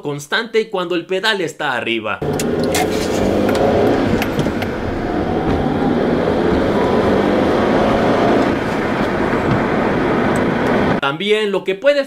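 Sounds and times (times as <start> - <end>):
engine and road noise: 2.2 - 11.0.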